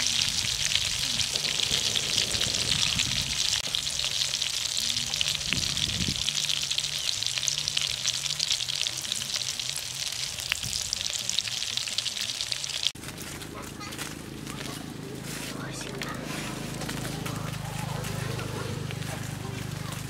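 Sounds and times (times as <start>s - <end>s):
deep-frying sizzle in oil: 0.0s - 13.0s.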